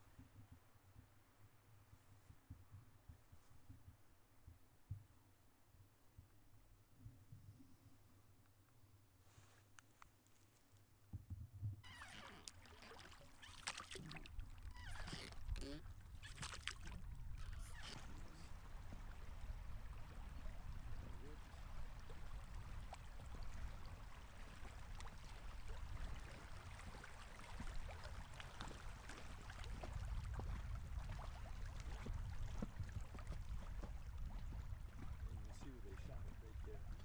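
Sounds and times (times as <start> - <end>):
oar splashing and dripping: 11.8 - 37.0
water lapping against raft: 11.8 - 37.0.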